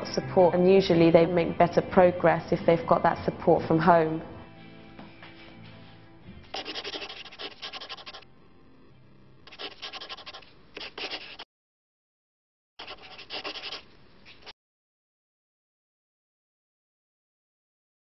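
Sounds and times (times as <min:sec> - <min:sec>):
pen writing on paper: 0:06.5 - 0:08.2, 0:09.5 - 0:11.4, 0:12.8 - 0:14.5.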